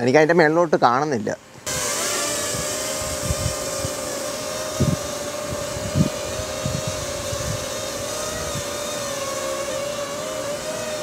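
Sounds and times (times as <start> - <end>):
quadcopter propellers buzzing: 1.6 - 11.0.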